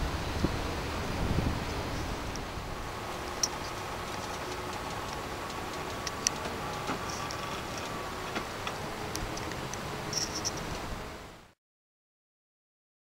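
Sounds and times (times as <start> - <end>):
faint steady whine: 0.0 - 11.6
steady hiss: 0.0 - 11.6
railroad switch clicking: 3.2 - 10.8.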